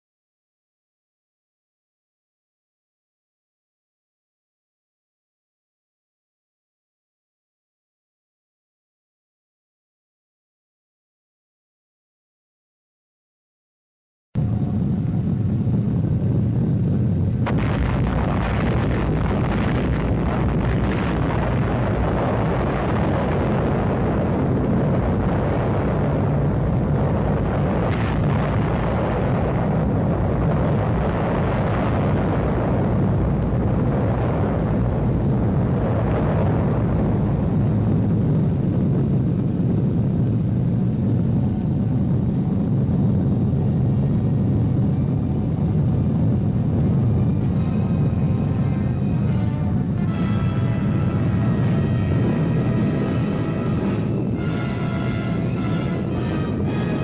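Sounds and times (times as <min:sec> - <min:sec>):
explosion rumbling roar: 0:14.4 - 0:57.0.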